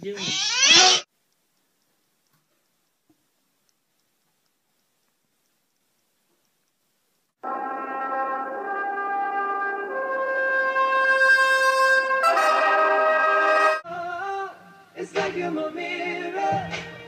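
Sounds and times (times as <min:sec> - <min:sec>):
brass instruments holding notes: 0:07.4 - 0:13.9.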